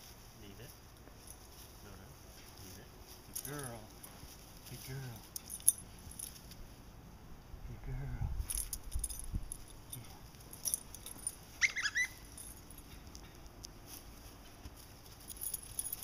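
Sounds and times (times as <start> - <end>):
light jingling: 0.0 - 7.1, 8.3 - 16.0
puppy squeaking: 11.6 - 12.5.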